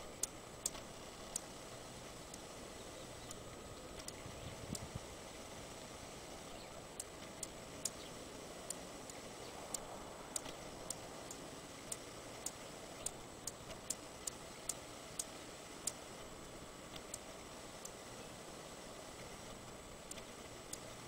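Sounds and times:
faint steady hiss: 0.0 - 21.0
hummingbird chip calls: 2.3 - 16.1.

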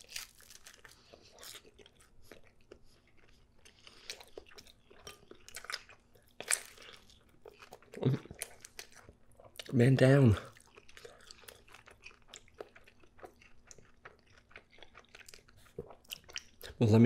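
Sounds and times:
pizza crust crunching: 0.0 - 2.6
wet mouth chewing sounds: 0.8 - 9.8, 10.4 - 16.8.

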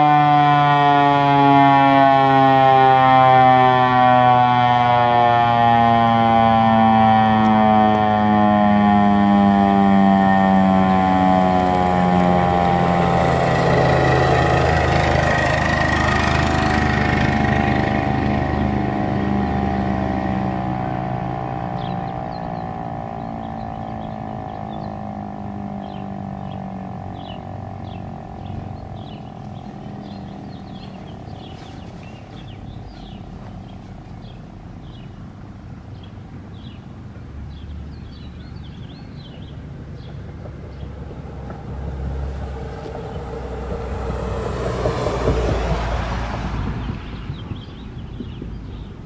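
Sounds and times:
warning siren winding down: 0.0 - 35.0, 40.5 - 47.0
low rumble: 16.5 - 35.2, 39.9 - 48.9
small birds chirping: 21.8 - 35.3, 35.9 - 41.6, 46.8 - 49.0.

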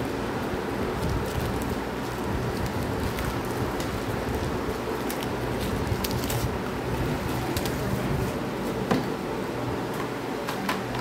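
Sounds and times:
paper mailer crinkling: 0.0 - 8.4
steady background hum: 0.0 - 11.0.

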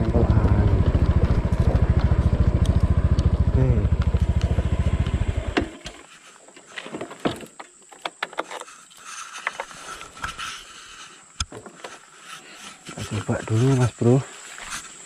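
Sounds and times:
motorbike engine cutting off: 0.0 - 6.0.

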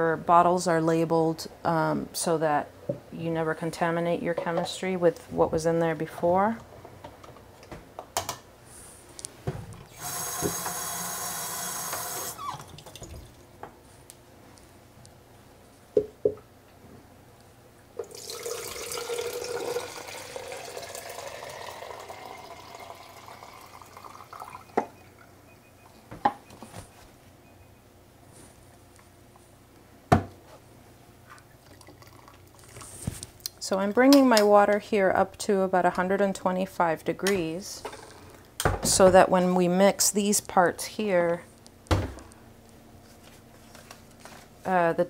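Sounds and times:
tap water running into container: 9.9 - 13.4, 18.0 - 25.0.

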